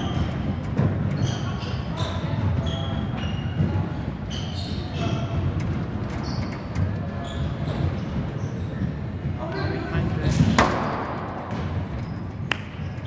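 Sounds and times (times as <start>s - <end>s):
shoes squeaking on hardwood floor: 0.0s - 13.0s.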